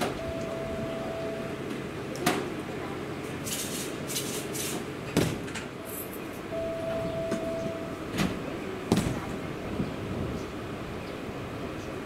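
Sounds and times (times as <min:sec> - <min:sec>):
steady single tone: 0:00.0 - 0:01.8, 0:05.8 - 0:08.6
train coupler clunk: 0:00.0 - 0:02.5, 0:05.1 - 0:10.0.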